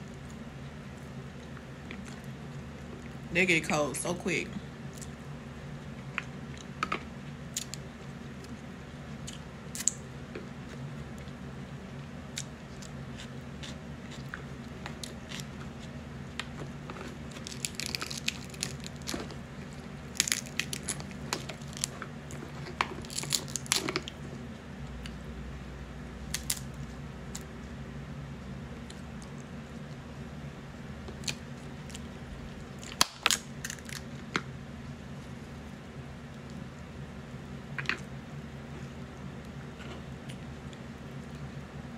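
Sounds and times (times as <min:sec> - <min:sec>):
low hum: 0:00.0 - 0:41.9
crab shells cracking: 0:06.7 - 0:07.8, 0:09.3 - 0:10.0, 0:16.4 - 0:24.2, 0:26.3 - 0:26.8, 0:32.8 - 0:34.5.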